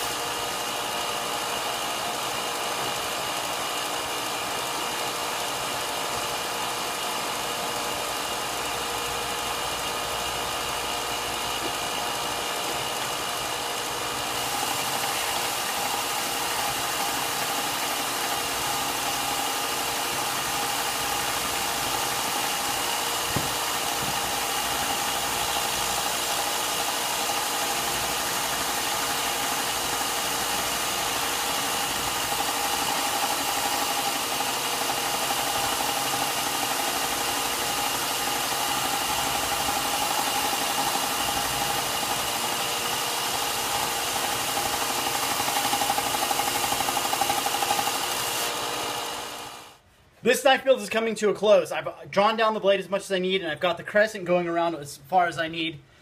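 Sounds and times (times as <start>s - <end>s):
electric air blower running: 0.0s - 49.8s
knock: 23.3s - 24.3s.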